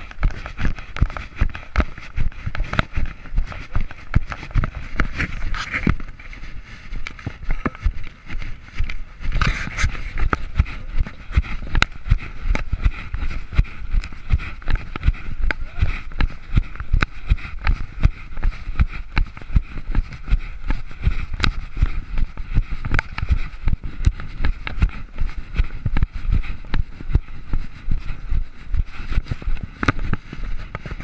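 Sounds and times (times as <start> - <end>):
camera jostling: 0.0 - 12.7
footsteps on dry grass and dirt: 0.0 - 31.0
low wind rumble on microphone: 0.0 - 31.0.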